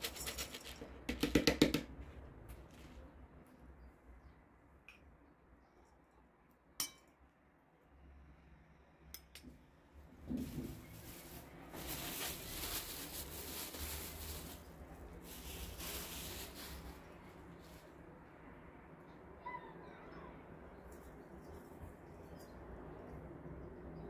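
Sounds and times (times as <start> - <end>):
plastic gloves crinkling: 10.2 - 17.9.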